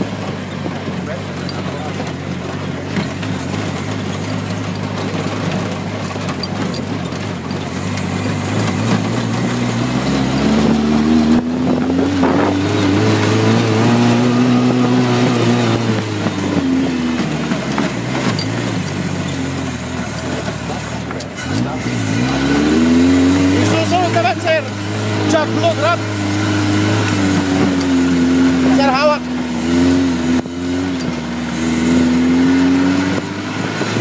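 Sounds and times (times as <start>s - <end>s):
car engine revving: 0.0s - 34.0s.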